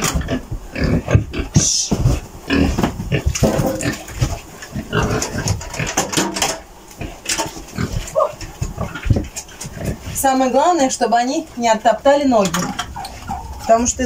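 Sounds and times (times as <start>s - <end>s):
pigs grunting and chomping: 0.0s - 11.6s.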